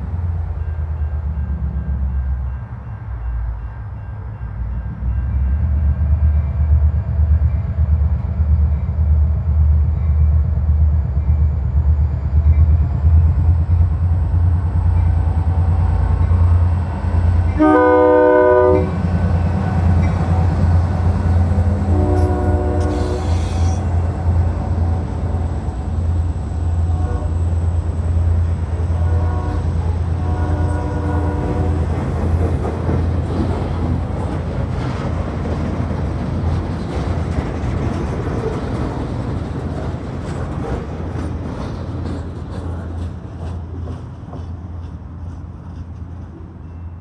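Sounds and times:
locomotive engine hum: 0.0 - 47.0
train wheels rumbling on rails: 0.0 - 47.0
locomotive horn blasts: 17.5 - 19.1, 21.8 - 23.9, 26.8 - 27.6, 28.8 - 31.9.

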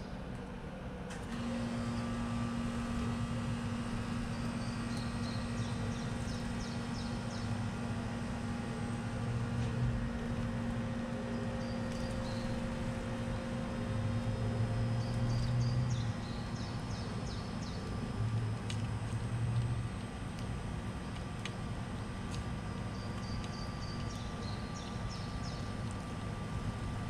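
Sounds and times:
steady low hum: 0.0 - 27.0
songbird singing: 4.3 - 7.6, 11.3 - 12.6, 14.8 - 17.9, 22.9 - 25.7.

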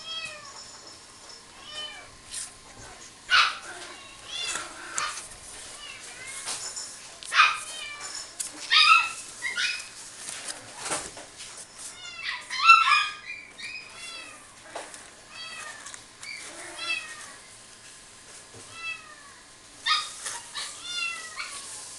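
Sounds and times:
puppy whining and yelping: 8.6 - 9.9, 12.2 - 14.0.

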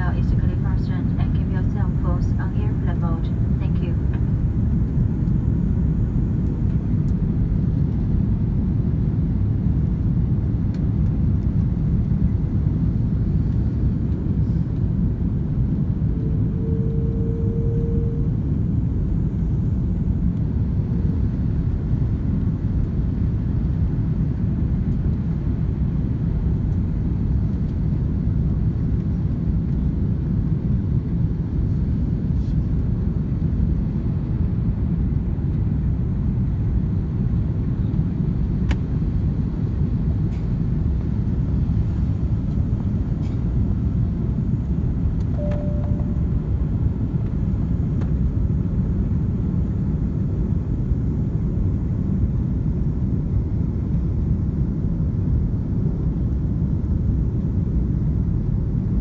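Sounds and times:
aircraft engine and airflow roar: 0.0 - 59.0
brief steady tone: 16.2 - 18.4, 45.3 - 46.4.

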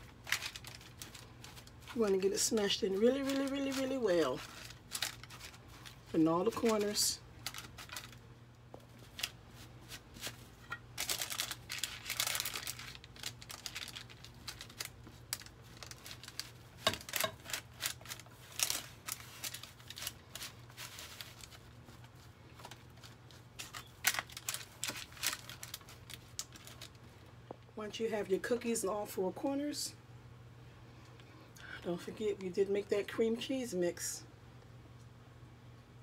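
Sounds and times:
parchment paper crinkling: 0.0 - 27.2
low steady hum: 0.0 - 36.0.

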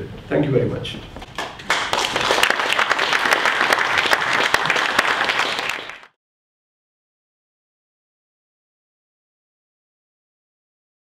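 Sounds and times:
audience applauding: 1.3 - 6.2.

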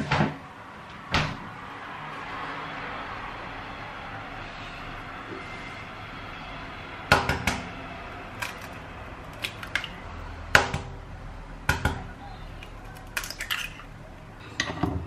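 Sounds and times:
eggs cracking on metal bowl: 8.3 - 10.9, 11.7 - 14.9.

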